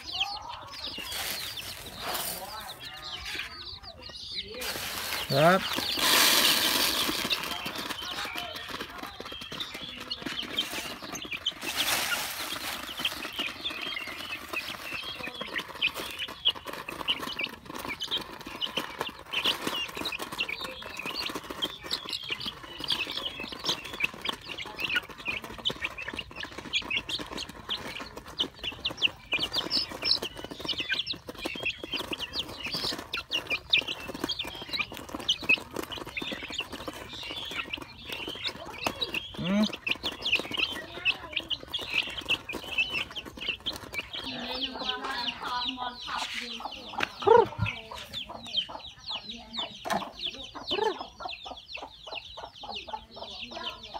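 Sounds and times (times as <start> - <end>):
chicks chirping and clucking: 0.0 - 53.9.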